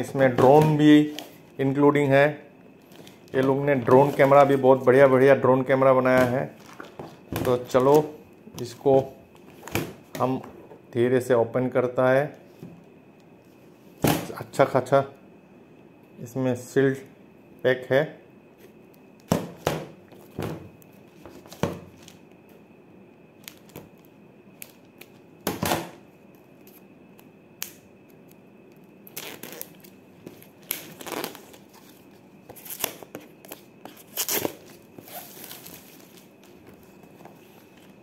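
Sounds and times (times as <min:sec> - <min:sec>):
plastic wrap tearing and crinkling: 0:29.0 - 0:32.0, 0:33.9 - 0:36.4.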